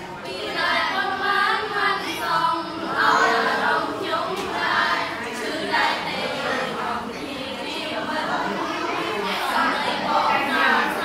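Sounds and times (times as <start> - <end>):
girls singing in unison: 0.0 - 11.0.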